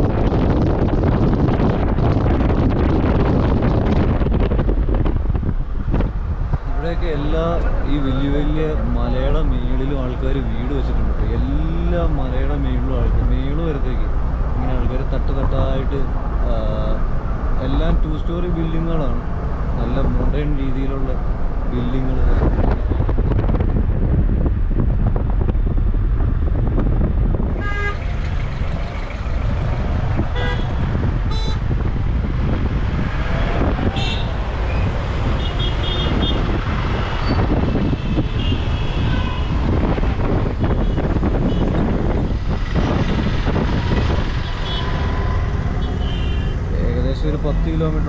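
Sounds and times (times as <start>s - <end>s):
traffic rumble: 0.0s - 48.0s
car horn toots: 27.5s - 28.4s, 30.3s - 31.7s, 38.0s - 39.6s, 43.8s - 46.6s.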